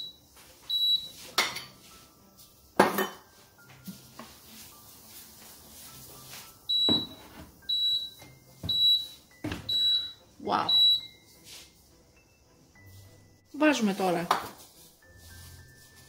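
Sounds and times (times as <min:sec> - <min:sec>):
high electronic beeps: 0:07.7 - 0:11.3.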